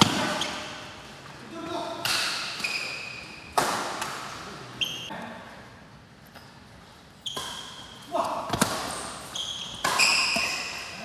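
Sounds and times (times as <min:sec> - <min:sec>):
shoes squeaking on court floor: 0:00.0 - 0:01.1, 0:02.1 - 0:05.1, 0:06.3 - 0:11.0
racket hitting shuttlecock: 0:02.0 - 0:04.4, 0:07.3 - 0:11.0.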